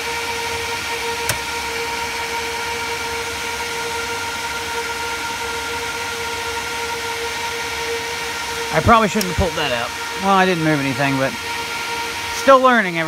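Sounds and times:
cooling fans whirring: 0:00.0 - 0:13.0
sharp click: 0:01.2 - 0:01.6.

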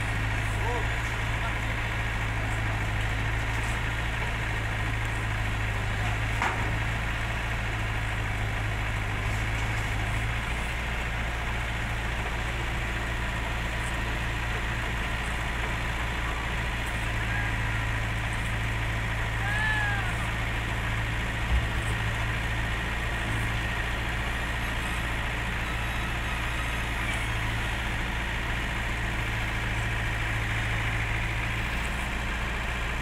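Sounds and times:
diesel engine idling: 0:00.0 - 0:33.0.

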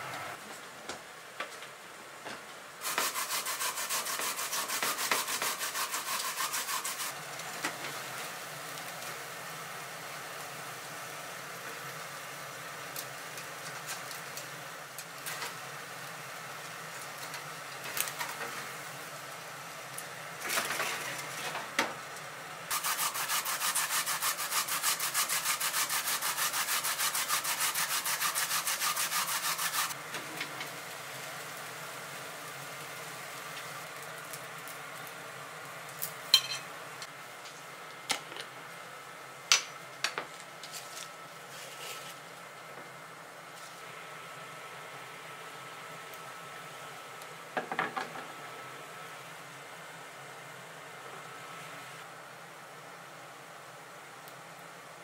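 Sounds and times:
radish grating rasping strokes: 0:02.8 - 0:07.2, 0:22.7 - 0:29.9.

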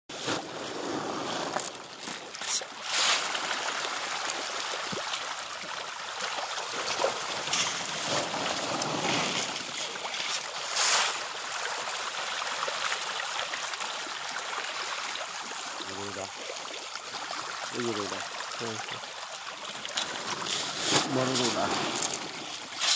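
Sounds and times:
fish thrashing water: 0:06.4 - 0:11.5, 0:19.6 - 0:22.9.

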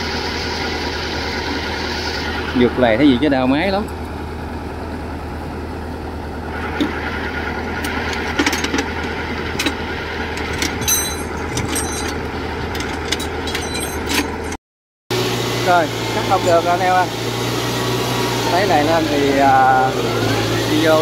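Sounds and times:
diesel engine idling: 0:00.0 - 0:14.5, 0:15.1 - 0:21.0
knocks and clatter: 0:08.0 - 0:14.6.

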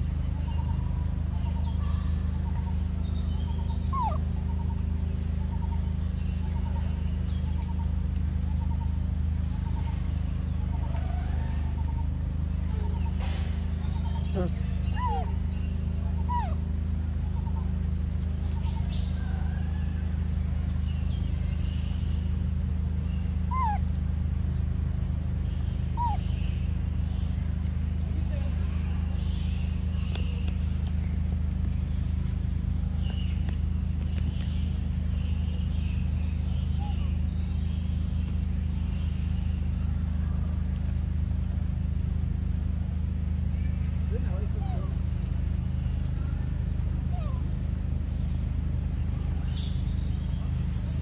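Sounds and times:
steady low hum: 0:00.0 - 0:51.0
high monkey squeaks: 0:03.9 - 0:04.3, 0:14.9 - 0:15.4, 0:16.2 - 0:16.6, 0:23.5 - 0:23.8, 0:26.0 - 0:26.3.

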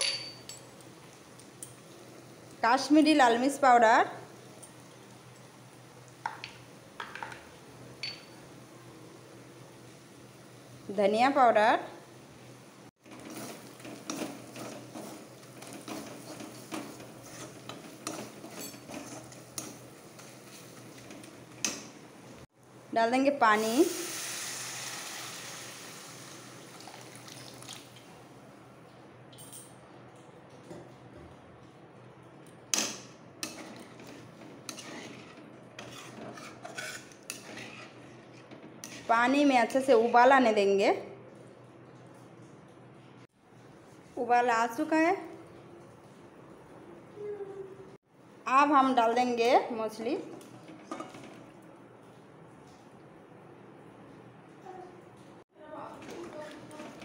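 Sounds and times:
onions frying: 0:12.0 - 0:22.8, 0:23.5 - 0:28.0
metal spatula scraping a pan: 0:13.0 - 0:21.2, 0:33.4 - 0:39.2.

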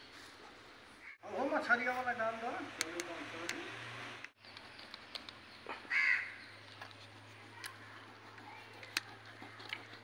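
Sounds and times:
crow cawing: 0:05.9 - 0:06.4.

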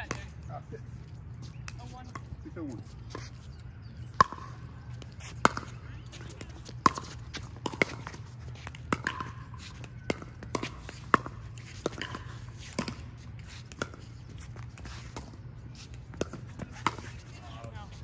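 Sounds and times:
paddles hitting plastic ball: 0:04.1 - 0:13.0.

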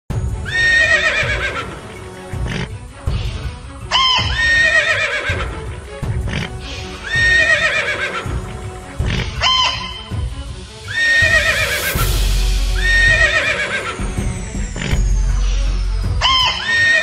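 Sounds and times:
background music: 0:00.1 - 0:17.0
horse whinnying: 0:00.5 - 0:01.7, 0:03.9 - 0:05.5, 0:06.3 - 0:08.4.

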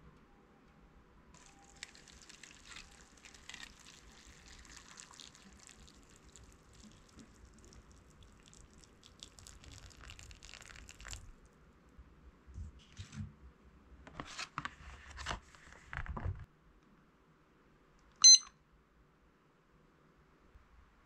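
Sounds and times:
paper packaging crinkling: 0:01.4 - 0:04.0
water pouring into cup: 0:01.4 - 0:11.3
short electronic beep: 0:18.2 - 0:18.5.

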